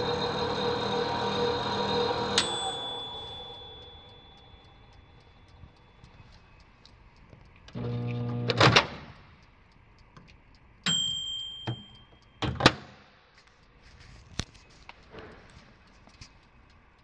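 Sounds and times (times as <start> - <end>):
microwave oven humming: 0.0 - 5.7, 7.7 - 9.1
microwave timer bell ringing: 0.8 - 6.0, 10.8 - 12.4.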